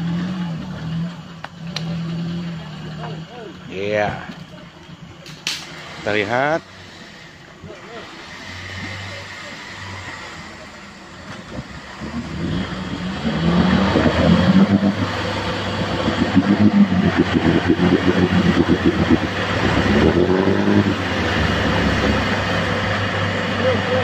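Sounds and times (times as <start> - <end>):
engine revving hard: 5.6 - 24.0.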